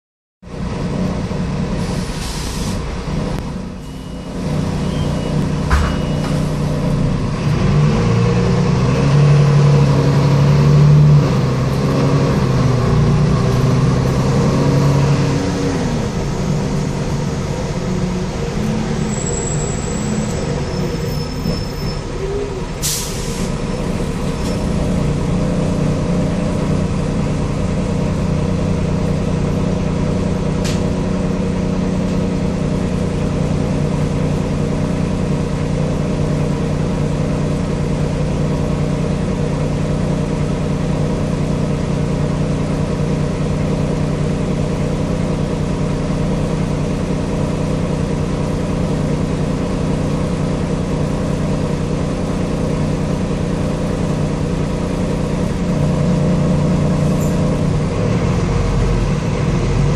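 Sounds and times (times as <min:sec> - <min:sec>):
bus engine droning: 0:00.4 - 0:59.9
air brake hiss: 0:01.8 - 0:02.8, 0:22.8 - 0:23.6.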